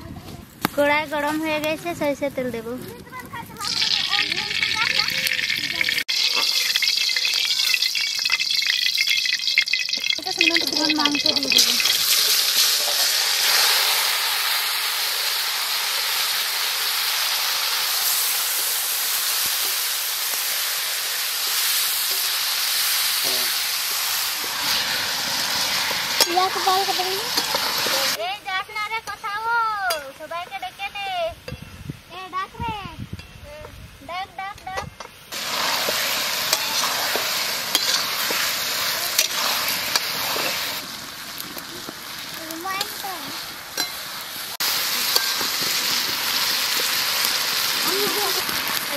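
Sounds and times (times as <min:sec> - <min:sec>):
meat sizzling in hot oil: 0:03.6 - 0:30.7, 0:35.2 - 0:48.9
spatula scraping a steel pan: 0:37.7 - 0:38.4.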